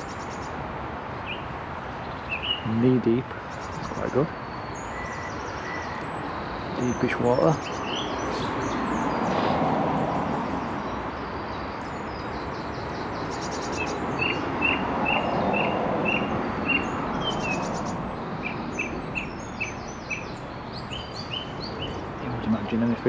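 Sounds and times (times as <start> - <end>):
small birds singing: 0.0 - 23.0.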